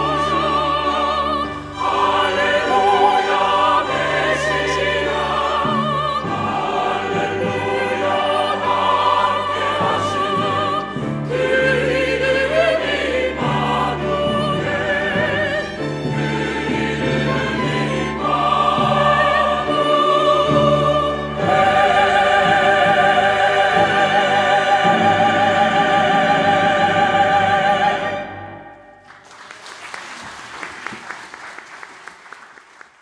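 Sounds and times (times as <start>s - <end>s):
choir singing with strings and piano: 0.0s - 29.2s
congregation applauding: 29.0s - 33.0s.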